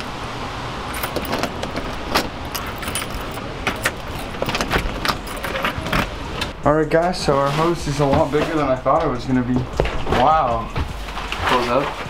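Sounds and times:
low background noise: 0.0 - 12.0
keys jangling in a lock: 0.9 - 6.2.

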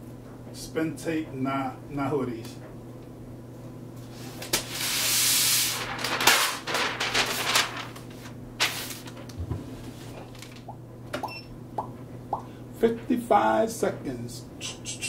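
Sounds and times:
paper pulled off a roll: 4.2 - 10.6
paper crackling and rustling: 4.2 - 10.7.

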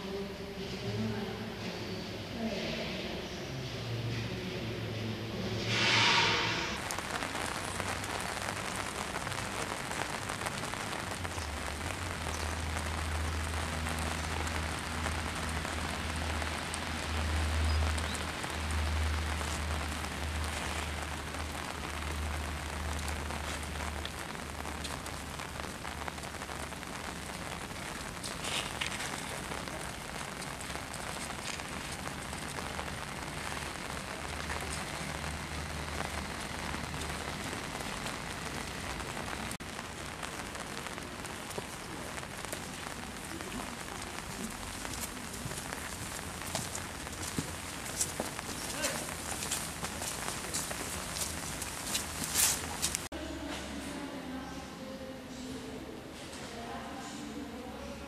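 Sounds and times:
low rumble: 3.6 - 7.6
rain on wet paving: 5.2 - 53.2.

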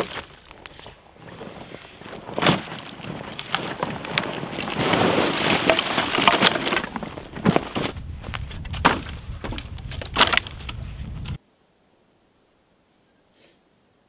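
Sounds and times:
branches clattering onto woodpile: 1.6 - 11.4
twigs snapping: 2.1 - 11.4.

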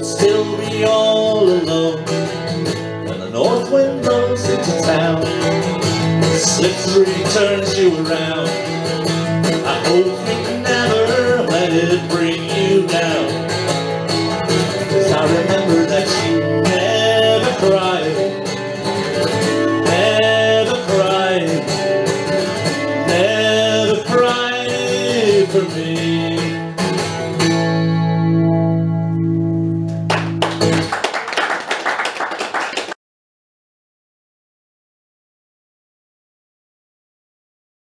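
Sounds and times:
person singing: 0.0 - 2.2, 3.1 - 13.6, 14.9 - 18.6, 19.4 - 22.0, 22.8 - 26.7
acoustic guitar: 0.0 - 31.2.

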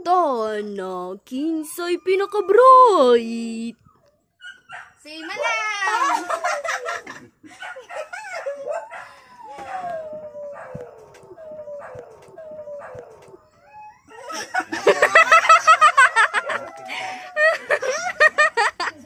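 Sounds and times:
people laughing loudly: 5.9 - 8.6, 14.2 - 19.0
long howl sliding down in pitch: 8.6 - 14.2.

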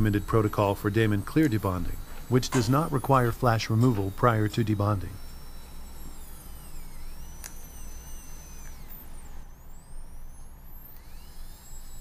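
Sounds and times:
dental handpiece whining: 0.0 - 12.0
sharp click: 7.3 - 7.8.

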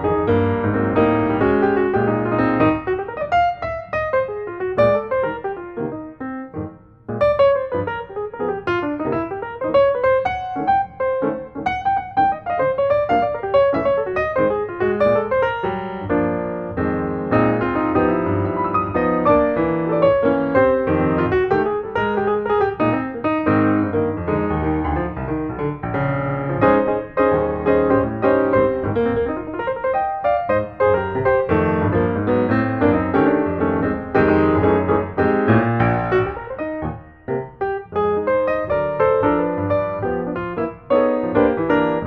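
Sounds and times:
piano music: 0.0 - 42.0.

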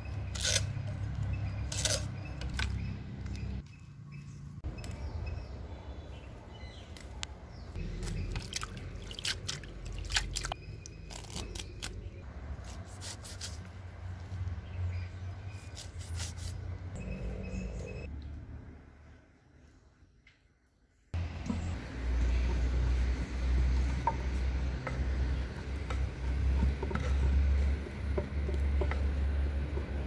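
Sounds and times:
water dripping and splashing: 8.0 - 10.6.

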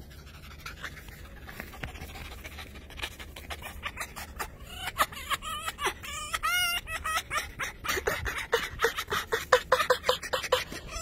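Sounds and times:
fox whining calls: 3.4 - 11.0.

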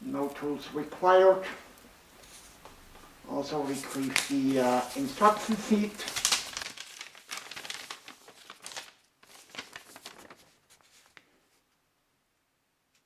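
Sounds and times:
paper rustling and crinkling: 2.2 - 11.7.

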